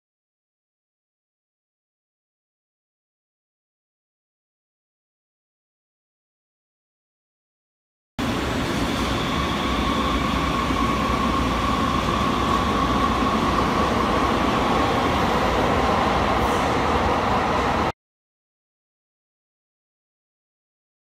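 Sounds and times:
train wheels rumbling on rails: 0:08.2 - 0:17.9.

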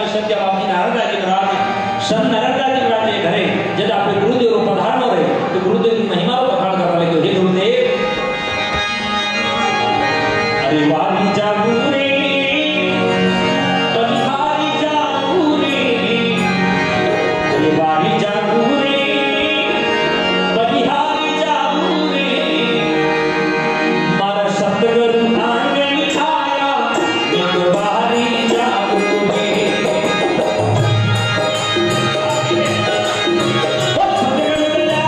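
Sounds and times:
man singing devotional song: 0:00.0 - 0:08.2, 0:10.6 - 0:35.0
harmonium: 0:00.0 - 0:35.0
hand drum: 0:27.0 - 0:35.0.

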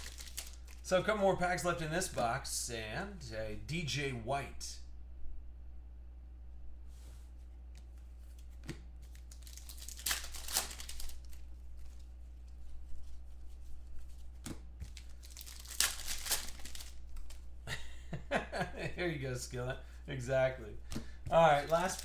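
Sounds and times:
plastic wrapper crinkling: 0:00.0 - 0:00.9, 0:09.0 - 0:12.6, 0:14.8 - 0:17.5, 0:21.3 - 0:22.0.

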